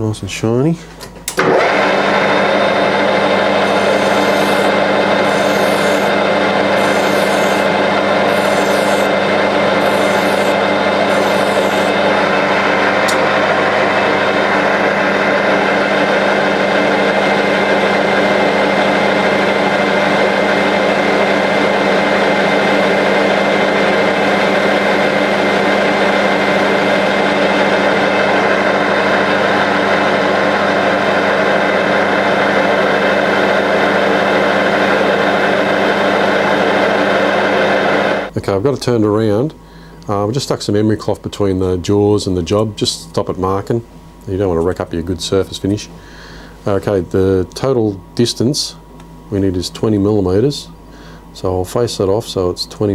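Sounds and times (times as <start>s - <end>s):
metal lathe humming: 1.4s - 38.3s
hand file rasping on metal: 3.8s - 6.1s, 6.8s - 7.7s, 8.3s - 9.1s, 9.8s - 12.0s
abrasive cloth rubbing metal: 6.8s - 12.1s.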